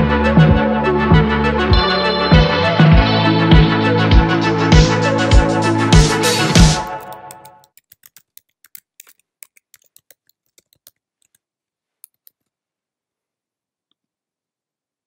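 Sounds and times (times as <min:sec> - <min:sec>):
electronic music with heavy beat: 0:01.7 - 0:07.5
faint keyboard typing clicks: 0:06.8 - 0:12.5.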